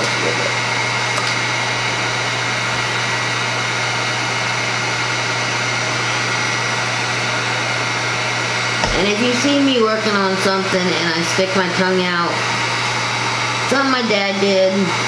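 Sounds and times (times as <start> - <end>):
heat gun blowing air: 0.0 - 15.0
heat gun motor hum: 0.0 - 15.0.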